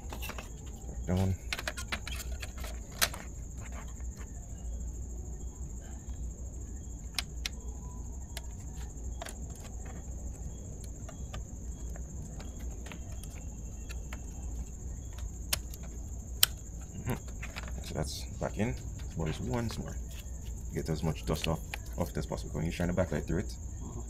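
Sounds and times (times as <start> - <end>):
plastic parts clicking and tapping: 0.0 - 4.3, 8.3 - 20.6.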